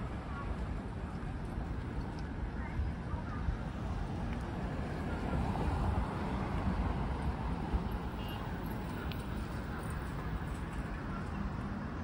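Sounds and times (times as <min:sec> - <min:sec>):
traffic rumble: 0:00.0 - 0:12.0.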